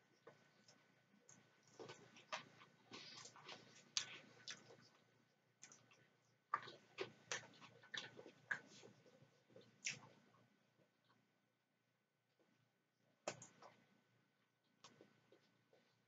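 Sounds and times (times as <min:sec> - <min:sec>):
chewing: 0:00.1 - 0:11.2.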